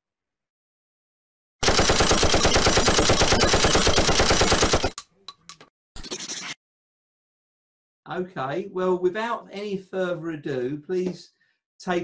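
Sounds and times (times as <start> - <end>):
machine-gun fire: 1.6 - 4.9.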